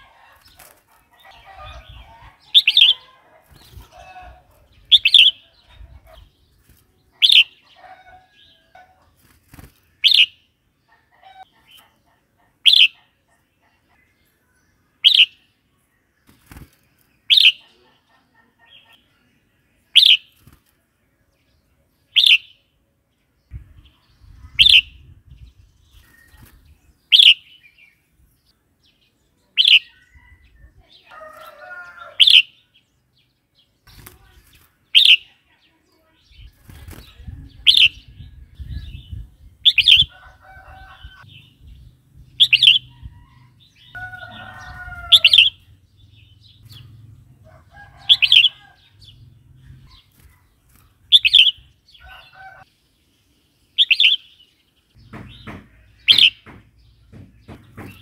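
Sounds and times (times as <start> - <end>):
bulbul calling: 0.0 - 6.2, 7.2 - 8.5, 10.0 - 10.4, 11.4 - 13.2, 15.0 - 15.4, 17.3 - 17.8, 22.1 - 22.6, 24.5 - 25.1, 27.1 - 27.7, 29.6 - 30.0, 32.2 - 32.6, 35.0 - 35.3, 37.0 - 40.1, 42.2 - 43.5, 45.0 - 46.9, 48.0 - 48.7, 51.1 - 51.7, 53.8 - 54.3, 55.0 - 58.0.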